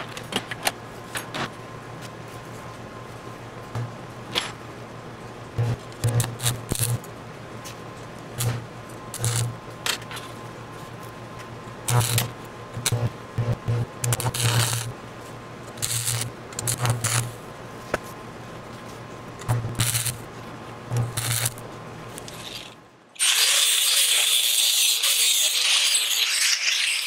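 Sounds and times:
welding arc crackling and buzzing: 5.6s - 7.1s, 8.4s - 9.6s, 11.8s - 15.0s, 15.7s - 17.4s, 19.4s - 27.0s
angle grinder cutting metal pipe: 9.2s - 9.5s, 11.9s - 13.0s, 14.1s - 14.9s, 19.8s - 20.2s, 20.9s - 21.6s, 22.3s - 27.0s.

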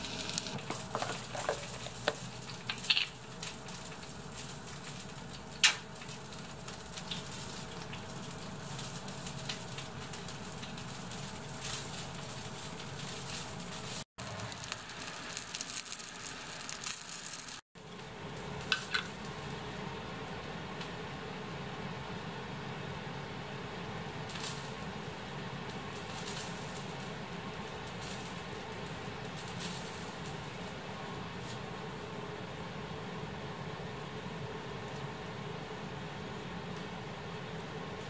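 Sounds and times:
sizzling hiss: 0.0s - 17.6s.

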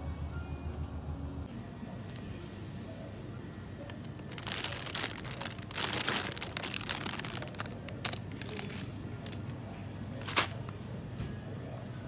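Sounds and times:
plastic packaging crinkling: 4.0s - 9.5s, 10.2s - 10.7s.

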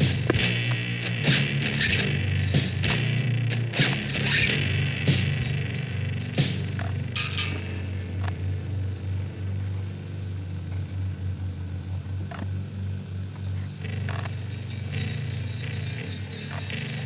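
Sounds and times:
low steady hum: 0.0s - 17.0s
faint clicks: 12.0s - 12.5s, 13.3s - 14.4s.

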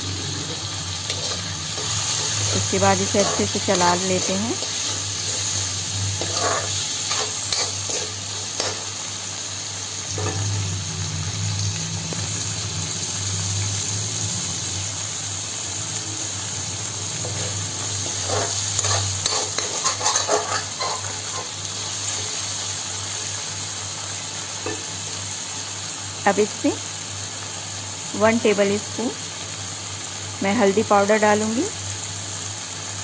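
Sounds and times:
vegetables sizzling in oil: 0.0s - 33.0s
steel spoon scraping pan: 0.4s - 8.9s, 17.2s - 22.3s.

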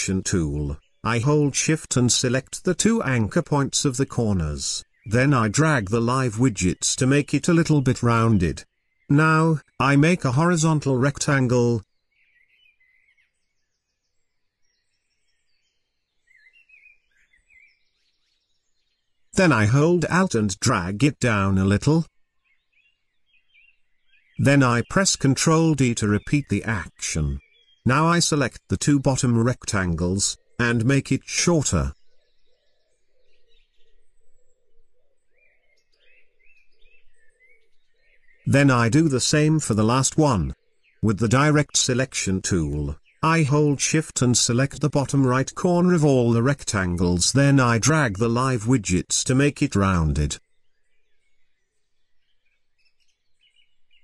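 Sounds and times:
faint low repeating sound: 0.0s - 11.8s, 19.4s - 22.1s, 38.5s - 50.4s
faint distant bird chirping: 0.0s - 54.0s.

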